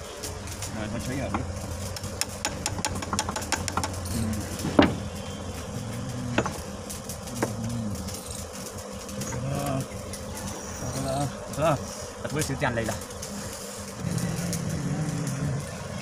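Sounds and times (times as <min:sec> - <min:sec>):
sharp knocks: 0:02.2 - 0:04.0, 0:04.6 - 0:05.1, 0:06.3 - 0:06.6.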